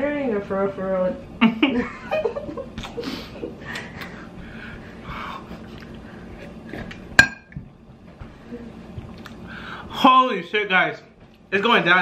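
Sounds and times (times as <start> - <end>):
man breathing hard: 3.0 - 6.3, 9.4 - 9.9.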